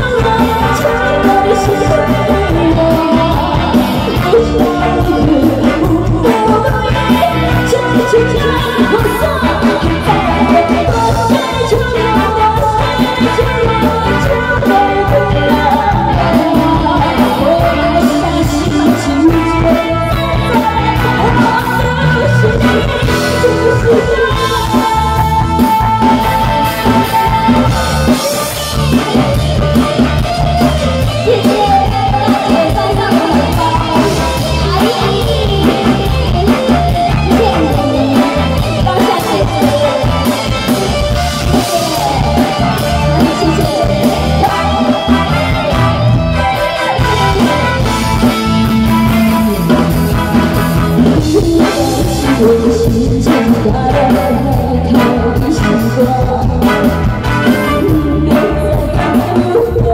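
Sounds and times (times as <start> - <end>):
amplified instrumental with beat: 0.0 - 59.9
woman singing pop song: 0.0 - 59.9.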